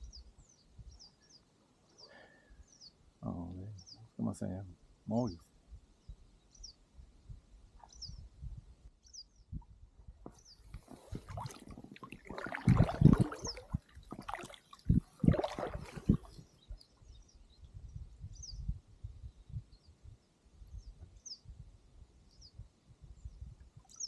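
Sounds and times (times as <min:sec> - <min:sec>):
bird chirping: 0:06.0 - 0:06.8
paddle splashing in water: 0:10.7 - 0:16.6.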